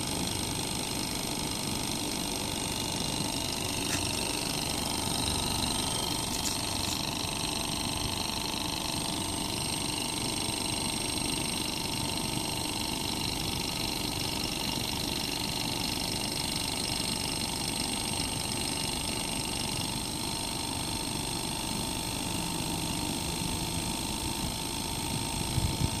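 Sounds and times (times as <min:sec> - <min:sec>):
high steady whines: 0:00.0 - 0:15.6
compressor mechanical whirr: 0:00.0 - 0:26.0.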